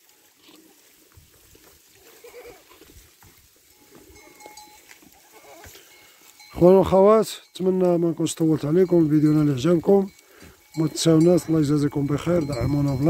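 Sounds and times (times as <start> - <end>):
hoof steps on stony ground: 0.0 - 13.0
goats bleating: 1.9 - 3.0, 3.8 - 6.3
small bell ringing: 4.1 - 4.8, 5.8 - 13.0.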